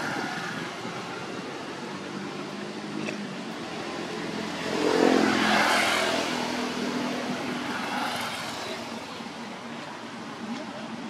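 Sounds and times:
vehicle passing by: 3.9 - 8.8.

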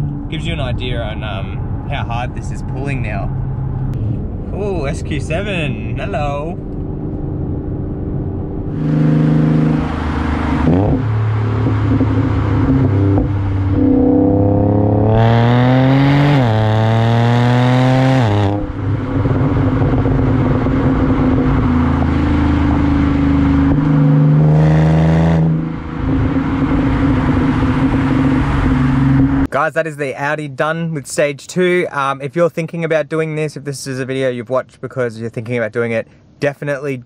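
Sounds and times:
car engine accelerating hard: 6.6 - 29.5.

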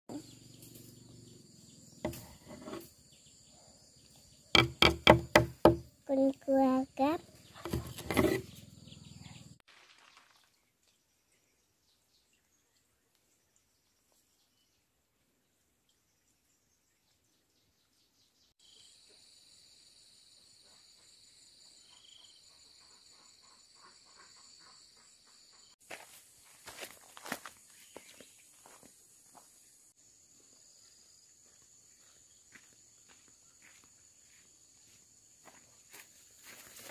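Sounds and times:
footsteps crunching on stony ground: 25.8 - 29.6, 30.9 - 36.9.

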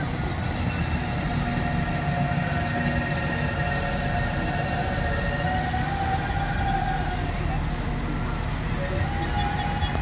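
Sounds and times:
train rumbling and humming: 0.0 - 10.0.

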